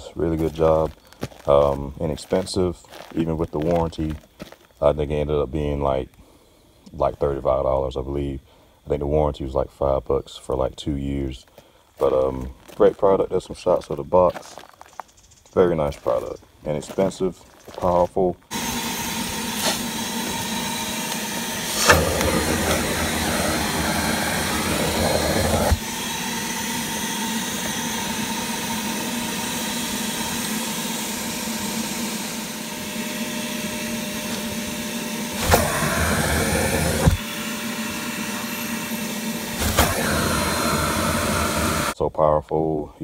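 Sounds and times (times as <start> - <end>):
shop vacuum motor whine: 16.2 - 42.0.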